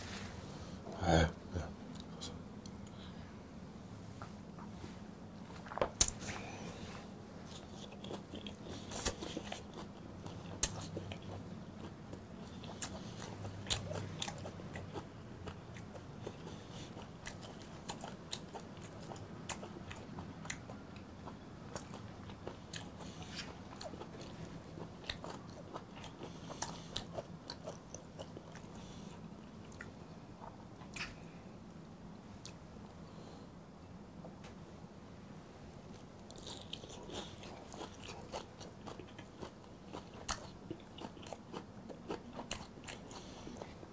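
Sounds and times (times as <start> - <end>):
close-miked chewing: 7.4 - 31.2, 35.9 - 43.9.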